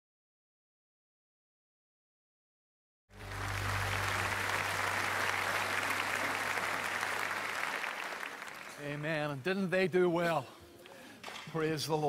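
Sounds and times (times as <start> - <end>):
congregation applauding: 3.1 - 9.5.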